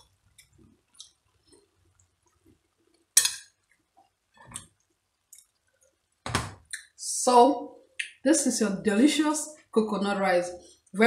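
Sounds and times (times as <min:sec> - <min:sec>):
metal spoon clinking on plate: 0:03.2 - 0:03.5.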